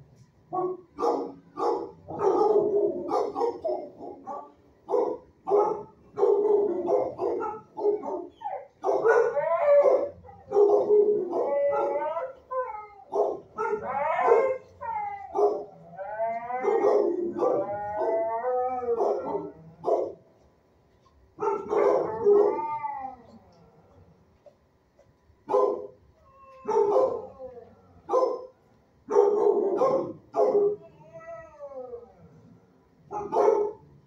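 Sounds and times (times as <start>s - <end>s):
dogs barking: 0.6s - 12.3s, 13.1s - 15.8s, 16.6s - 20.3s, 21.4s - 22.7s, 25.5s - 26.0s, 26.6s - 27.4s, 28.1s - 30.8s, 33.1s - 33.9s
dogs howling: 6.2s - 20.2s, 21.5s - 24.1s, 26.2s - 28.4s, 29.1s - 32.6s.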